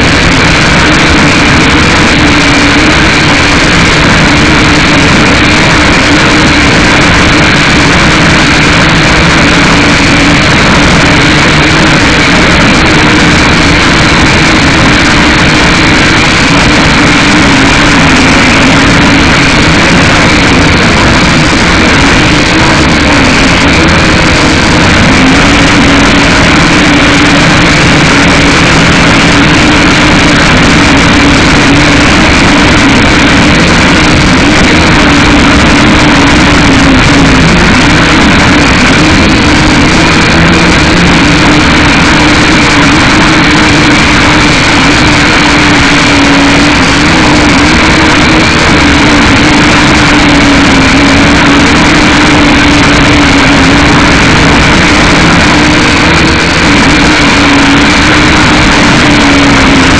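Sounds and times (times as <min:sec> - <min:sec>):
quadcopter motors buzzing: 0:00.0 - 0:59.9.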